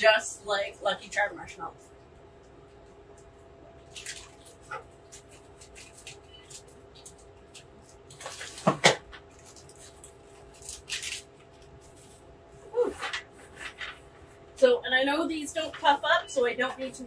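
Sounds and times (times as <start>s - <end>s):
plastic bag crinkling: 3.8s - 12.3s.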